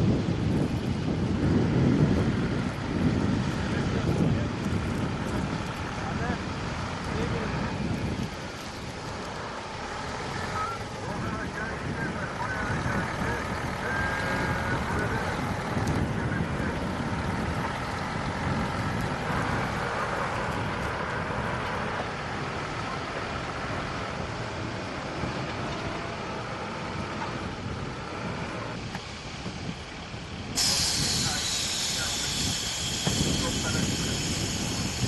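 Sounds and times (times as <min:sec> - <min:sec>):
fire truck engines rumbling: 0:00.0 - 0:35.0
loud hiss: 0:30.5 - 0:35.0.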